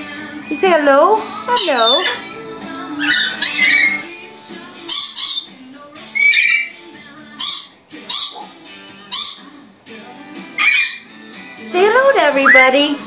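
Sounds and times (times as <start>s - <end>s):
background music: 0.0s - 13.0s
parrot squawking: 1.4s - 4.2s, 4.8s - 9.7s, 10.5s - 11.2s, 12.2s - 13.0s.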